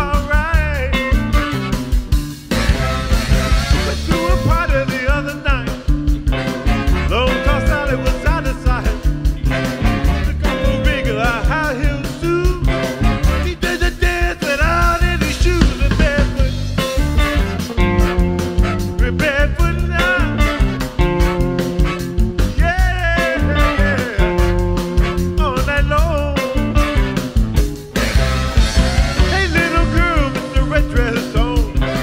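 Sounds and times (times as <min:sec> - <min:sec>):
man singing into a microphone: 0:00.0 - 0:01.4, 0:03.7 - 0:05.9, 0:07.0 - 0:17.7, 0:18.9 - 0:20.9, 0:22.5 - 0:26.8, 0:29.1 - 0:32.0
bass guitar: 0:00.0 - 0:32.0
drum kit beat: 0:00.0 - 0:32.0
electric guitar: 0:00.0 - 0:32.0.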